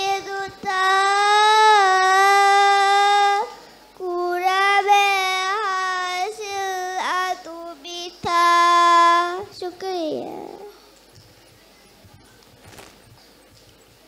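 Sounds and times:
girl chanting into a microphone: 0:00.0 - 0:10.8.

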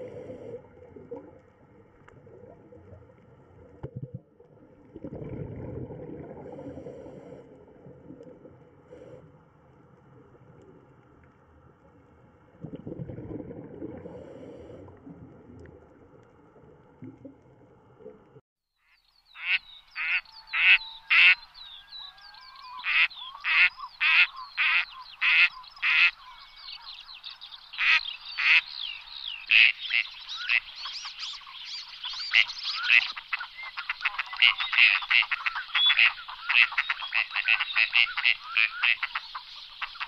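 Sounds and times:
muffled underwater rumble: 0:00.0 - 0:18.4
ducks quacking: 0:19.4 - 0:21.6, 0:22.5 - 0:26.9, 0:27.7 - 0:28.8, 0:29.5 - 0:31.4, 0:32.0 - 0:40.0.

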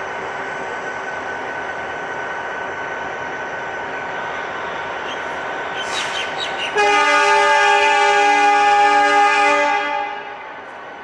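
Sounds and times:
locomotive air horn blast: 0:06.8 - 0:10.4.

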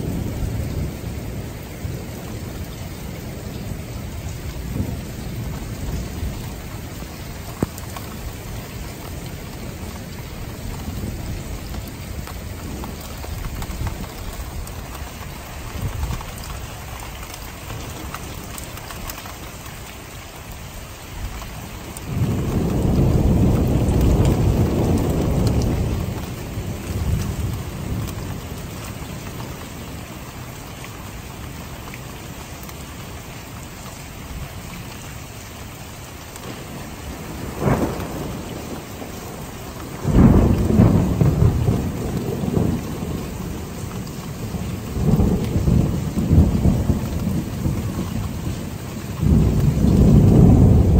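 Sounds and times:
thunder rumbling: 0:00.0 - 0:19.7, 0:21.2 - 0:30.3, 0:36.3 - 0:50.9
steady rain: 0:00.0 - 0:50.9
sharp thunder crack: 0:36.7 - 0:39.4, 0:40.0 - 0:43.4, 0:49.2 - 0:50.9.

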